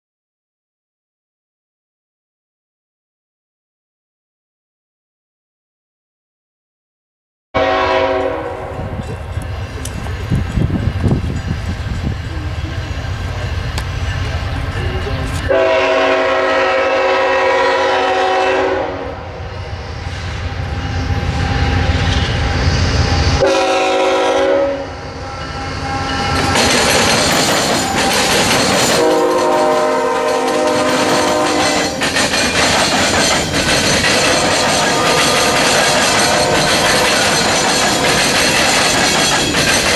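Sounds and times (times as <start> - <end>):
locomotive air horn blasts: 7.6 - 9.0, 15.5 - 19.4, 23.4 - 26.1, 29.0 - 32.0, 34.4 - 37.1
train wheels clattering over crossing: 8.2 - 16.2, 26.0 - 39.9.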